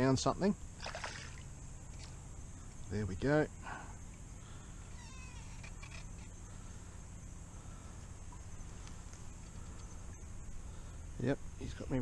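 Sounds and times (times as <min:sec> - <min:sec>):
steady high hiss: 0:00.0 - 0:12.0
faint meow-like animal call: 0:04.9 - 0:06.0.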